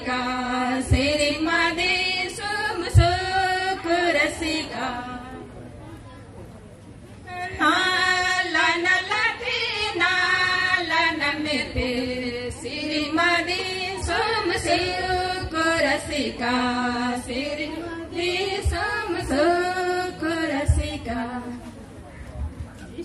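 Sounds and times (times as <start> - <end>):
women singing into microphones: 0.0 - 5.5, 7.3 - 21.8.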